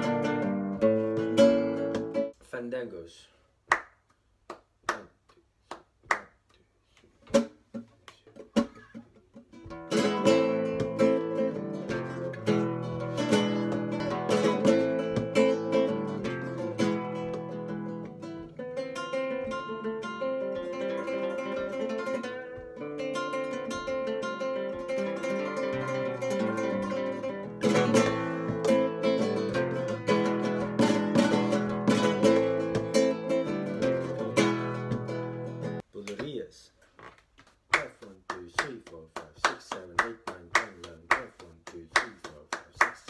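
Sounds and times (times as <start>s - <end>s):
flamenco guitar playing: 0.0s - 2.4s, 7.2s - 35.8s
sharp hand claps: 3.7s - 8.8s, 37.4s - 43.0s.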